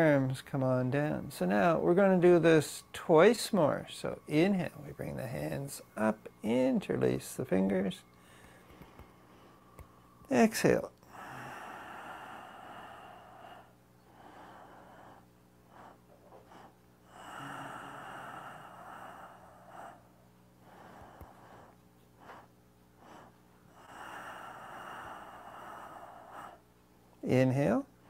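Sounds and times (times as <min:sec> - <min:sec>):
man breathing slowly: 0:08.0 - 0:10.3, 0:11.0 - 0:26.8.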